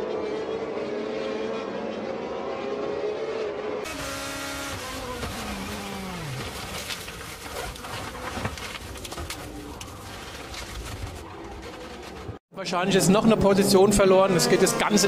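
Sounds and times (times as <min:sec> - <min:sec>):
race car engines at high revs: 0:00.0 - 0:08.1, 0:13.2 - 0:15.0
car engine slowing down: 0:00.4 - 0:08.8.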